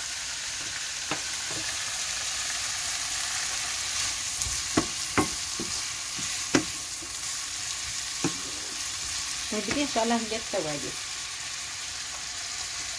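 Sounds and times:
vegetables sizzling in a frying pan: 0:00.0 - 0:12.9
wooden spatula knocking on pan: 0:04.4 - 0:07.2.

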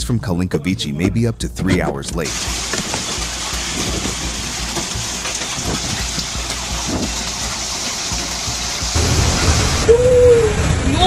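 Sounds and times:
heavy rain and hail: 0:02.3 - 0:11.0.

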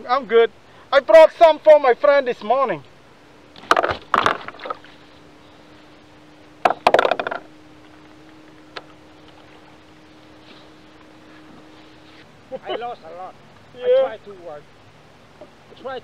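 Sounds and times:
faint steady hum: 0:00.0 - 0:16.0
knocks on plastic kayak deck: 0:06.6 - 0:07.5.

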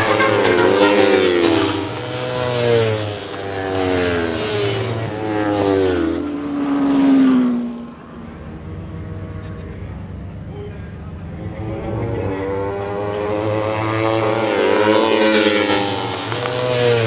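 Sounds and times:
motorcycles accelerating hard: 0:00.0 - 0:17.0.

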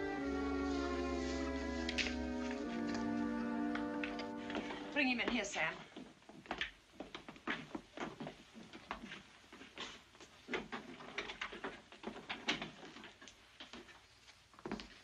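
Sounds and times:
footsteps on hard floor: 0:00.1 - 0:10.9.

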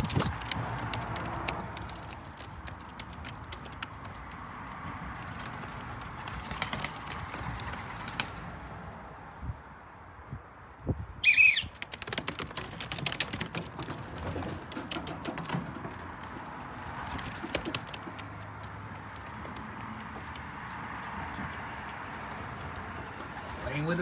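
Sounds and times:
pigeon wings flapping: 0:00.0 - 0:08.6, 0:11.4 - 0:20.4.

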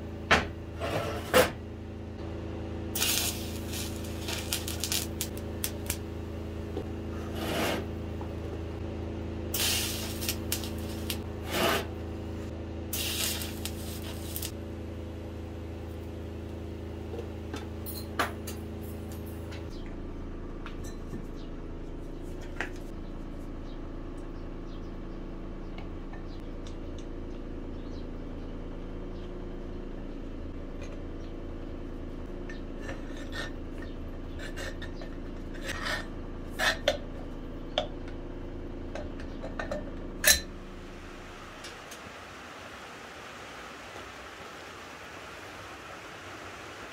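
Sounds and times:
steady low hum: 0:00.0 - 0:46.9
welding hiss: 0:03.0 - 0:06.0, 0:09.5 - 0:11.9, 0:12.9 - 0:14.6.

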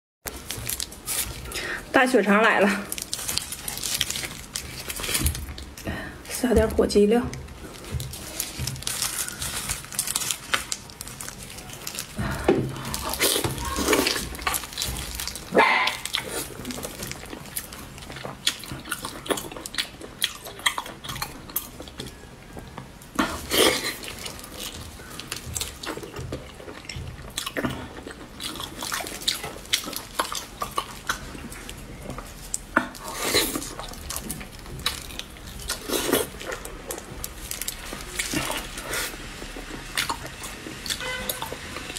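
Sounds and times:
sausage casing tearing: 0:02.8 - 0:05.8, 0:07.4 - 0:22.3, 0:27.3 - 0:41.9
wet chewing and lip smacking: 0:07.3 - 0:41.9.

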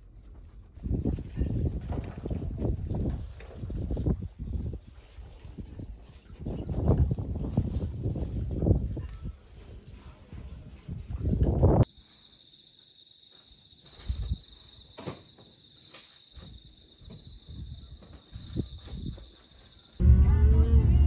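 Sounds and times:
crickets chirping: 0:11.8 - 0:20.0
low rumbling noise: 0:20.0 - 0:21.0.

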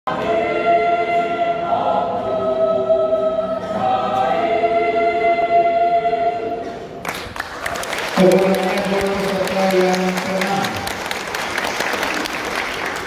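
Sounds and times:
women's choir singing: 0:00.1 - 0:07.0.

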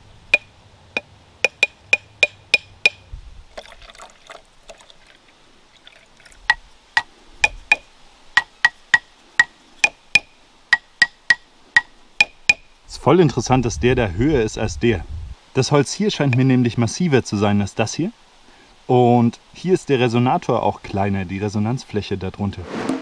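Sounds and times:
wooden marimba bars tapped: 0:00.3 - 0:03.1, 0:06.5 - 0:12.7.

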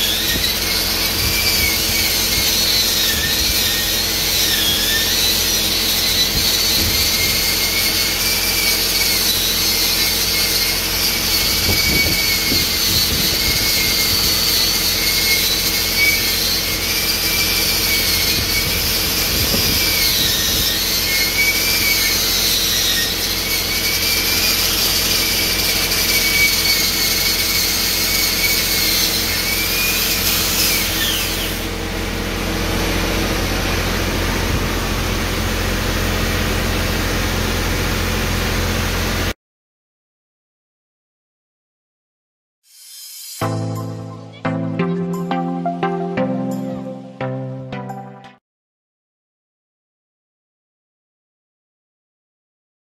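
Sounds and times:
angle grinder grinding metal: 0:00.0 - 0:31.7
steady engine hum: 0:31.2 - 0:39.3.

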